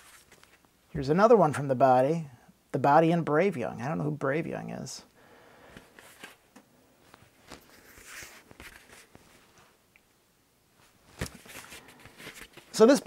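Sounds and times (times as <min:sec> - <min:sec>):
cardboard sleeve rustling: 0:00.0 - 0:00.8, 0:05.8 - 0:09.8, 0:10.8 - 0:12.8.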